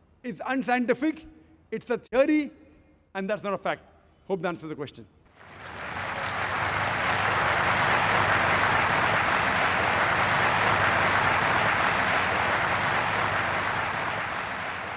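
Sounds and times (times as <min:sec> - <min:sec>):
large audience applauding: 0:05.3 - 0:14.9.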